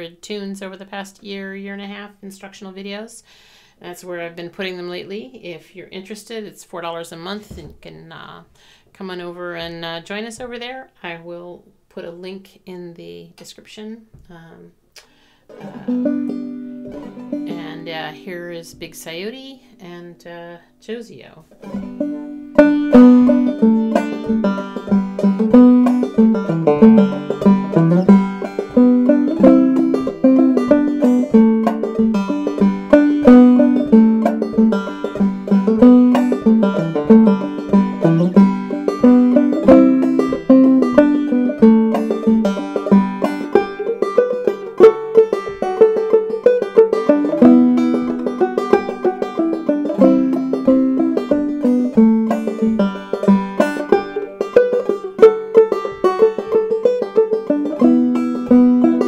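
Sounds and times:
clawhammer banjo playing: 15.5 - 20.0, 21.5 - 59.0.

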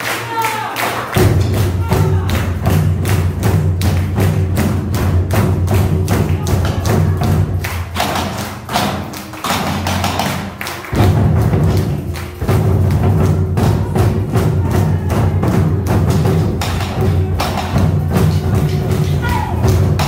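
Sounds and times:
drums struck in unison: 1.2 - 20.0.

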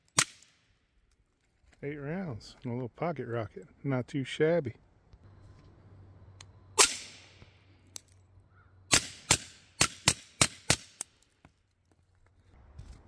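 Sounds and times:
suppressed pistol shots: 6.8 - 7.4, 8.9 - 11.0.

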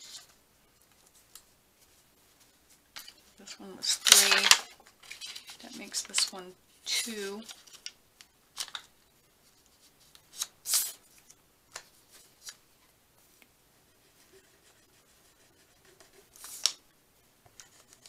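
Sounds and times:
paper sheet rustling: 3.8 - 6.4.

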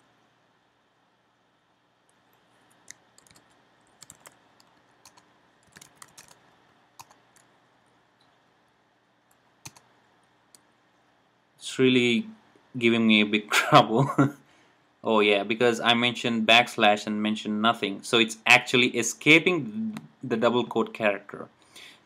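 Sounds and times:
computer keyboard keystrokes: 2.7 - 6.4, 7.0 - 7.5, 9.6 - 9.9.

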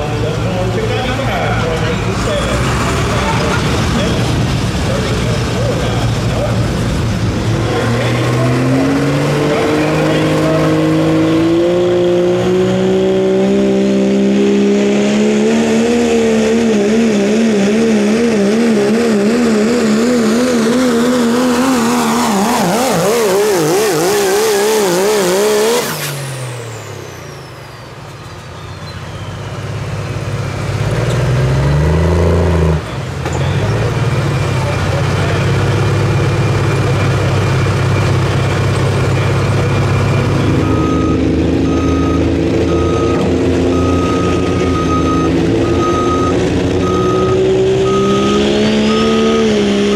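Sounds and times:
diesel engine at full throttle: 0.0 - 49.9
turbocharger whistle: 21.4 - 29.7, 40.4 - 49.9.

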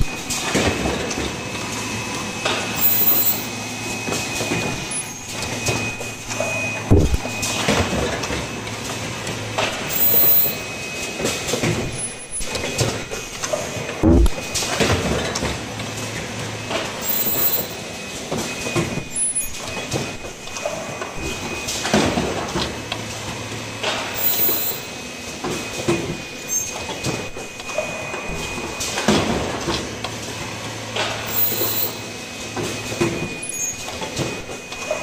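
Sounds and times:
low machine hum: 0.0 - 10.8, 11.7 - 14.6
steady high tone: 1.5 - 7.6, 9.8 - 11.0.

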